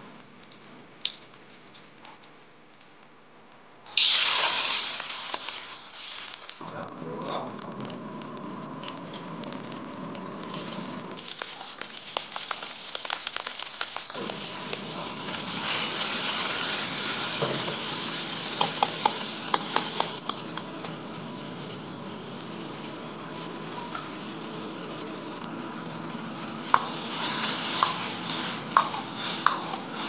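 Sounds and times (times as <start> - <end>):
oil sizzling in a wok: 3.9 - 6.6, 9.3 - 30.0
spatula knocking on wok: 18.6 - 20.7.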